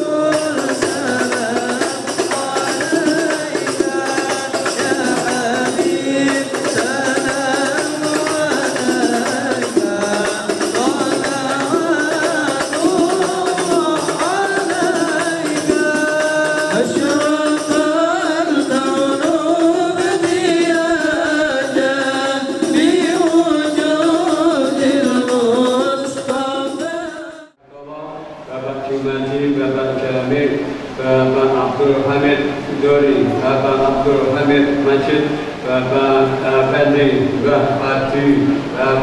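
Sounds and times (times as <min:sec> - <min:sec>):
frame drums beating: 0:00.0 - 0:27.4
men singing devotional song: 0:00.0 - 0:39.0.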